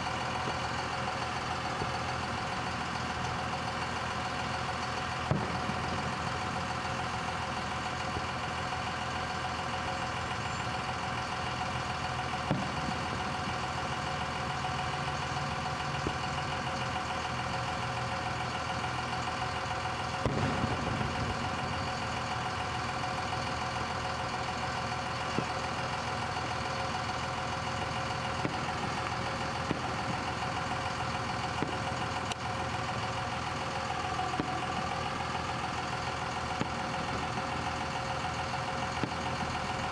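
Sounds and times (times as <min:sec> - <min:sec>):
distant fireworks booming: 0:05.0 - 0:08.3, 0:12.3 - 0:15.0, 0:19.8 - 0:24.2, 0:25.2 - 0:27.1, 0:27.7 - 0:39.8.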